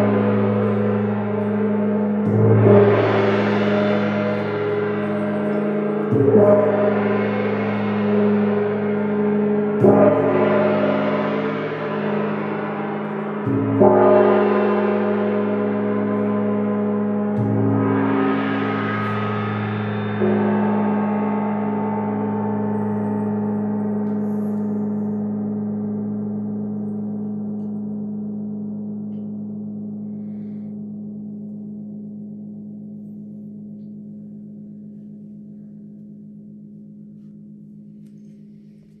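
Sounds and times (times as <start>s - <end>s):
large gong ringing: 0.0s - 26.6s.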